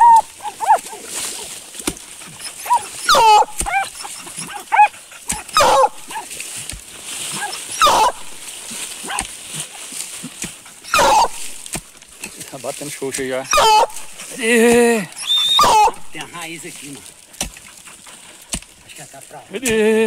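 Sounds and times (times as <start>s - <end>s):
dog barking and yelping: 0.0s - 1.6s, 2.3s - 6.3s, 7.3s - 9.3s, 10.7s - 11.6s, 13.4s - 14.3s, 15.1s - 16.2s.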